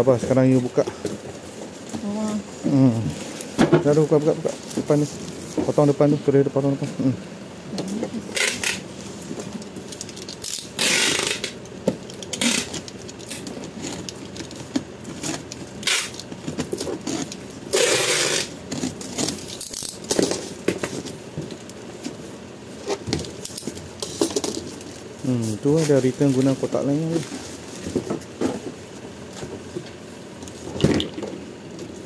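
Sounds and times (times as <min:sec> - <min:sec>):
cardboard and plastic rustling: 0:00.1 - 0:07.1, 0:07.7 - 0:32.0
packing tape ripping: 0:08.3 - 0:08.8, 0:09.6 - 0:21.2.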